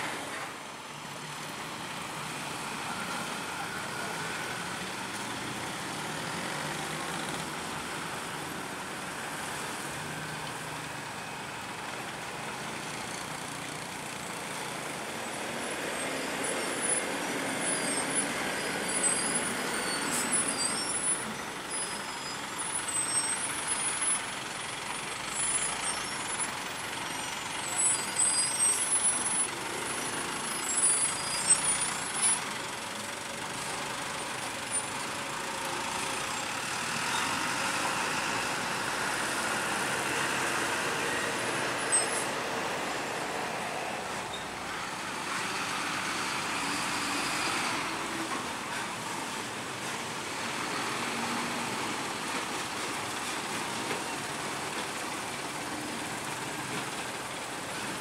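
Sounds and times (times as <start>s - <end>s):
truck engine and tyres rumbling: 0.0s - 58.0s
vehicles passing close by: 0.0s - 58.0s
high-pitched brake squeals: 15.8s - 24.3s, 25.2s - 32.5s, 35.9s - 38.5s, 41.0s - 42.4s, 44.2s - 44.6s.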